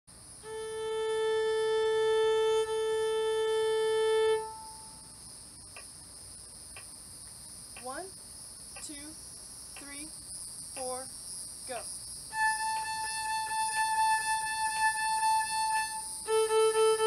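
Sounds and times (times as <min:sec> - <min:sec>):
cicadas buzzing: 0:00.1 - 0:17.0
violin long bowed note: 0:00.4 - 0:05.0, 0:12.3 - 0:17.0.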